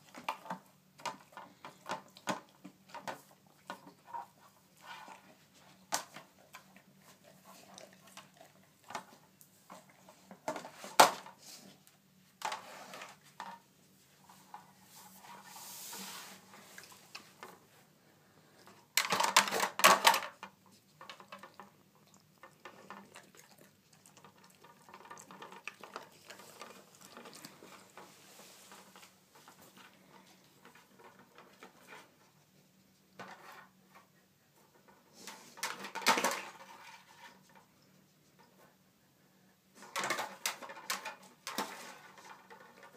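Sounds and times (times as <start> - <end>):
plastic clacking and clattering: 0.1 - 4.3, 18.7 - 21.8, 24.1 - 28.1, 34.7 - 37.7, 39.8 - 42.9.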